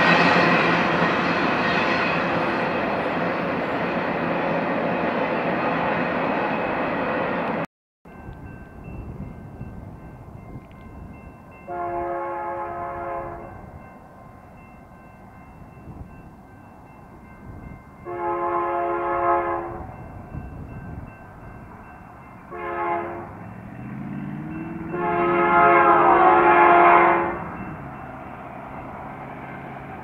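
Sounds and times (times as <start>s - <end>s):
diesel locomotive engines: 0.0s - 30.0s
locomotive air horn blasts: 11.7s - 13.6s, 18.0s - 19.9s, 22.5s - 23.5s, 24.8s - 27.6s.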